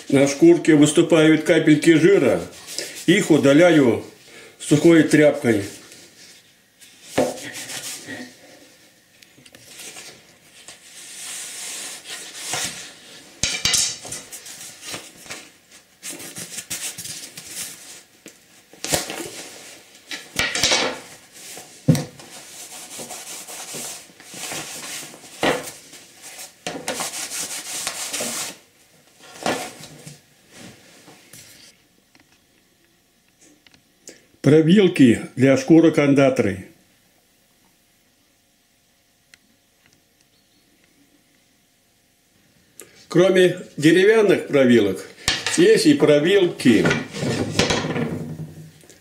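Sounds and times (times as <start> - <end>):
cloth rubbing on pelt: 9.7 - 13.3, 21.2 - 28.6.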